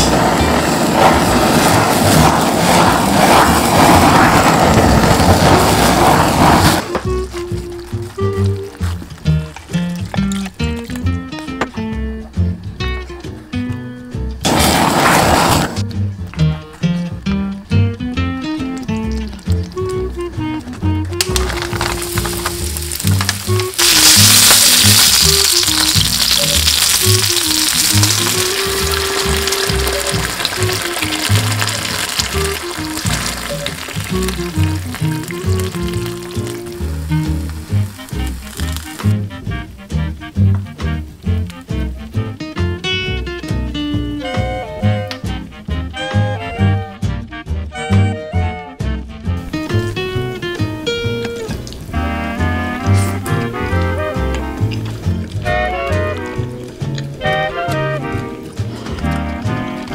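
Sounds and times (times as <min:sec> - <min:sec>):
blowtorch flame hissing: 0:00.0 - 0:07.1, 0:14.4 - 0:15.8, 0:21.4 - 0:39.2
sauce sizzling: 0:00.0 - 0:11.3, 0:17.1 - 0:46.4, 0:49.3 - 0:59.9
soft background music: 0:15.8 - 0:59.9.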